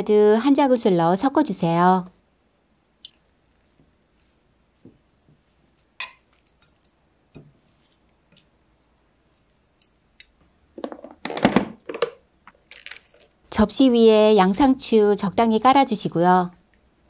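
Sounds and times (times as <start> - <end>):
spoon tossing food in bowl: 3.1 - 10.4
plastic container clattering: 10.8 - 13.3.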